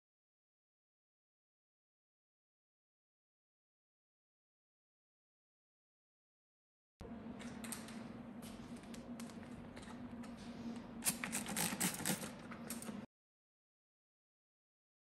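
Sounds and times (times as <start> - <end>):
steady low hum: 7.0 - 13.1.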